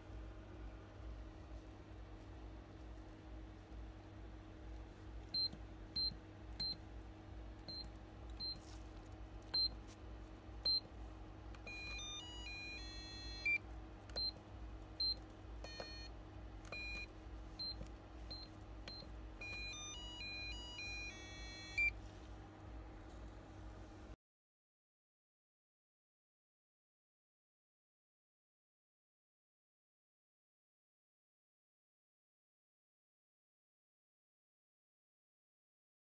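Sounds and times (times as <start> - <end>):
keypad buzzer beeping: 10.6 - 10.8, 11.6 - 13.6, 15.0 - 16.1, 16.7 - 21.9.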